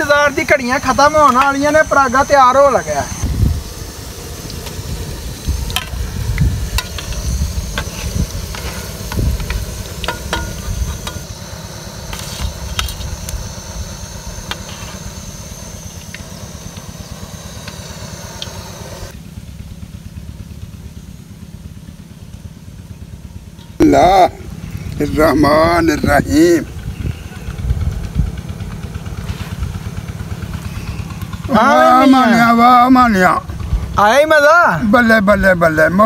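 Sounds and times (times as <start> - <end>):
low rumble: 1.9 - 20.8, 24.1 - 31.6
food deep-frying in oil: 3.2 - 18.8.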